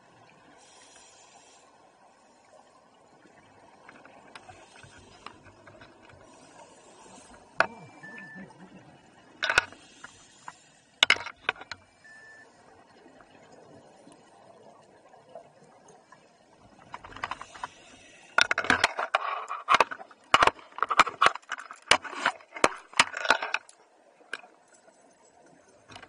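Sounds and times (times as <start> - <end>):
faint underwater hiss: 0.0 - 3.4, 4.2 - 11.0, 17.4 - 18.4.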